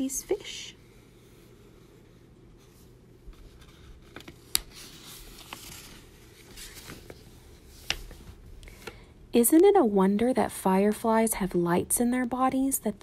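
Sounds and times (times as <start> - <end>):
book pages turning: 2.6 - 9.0.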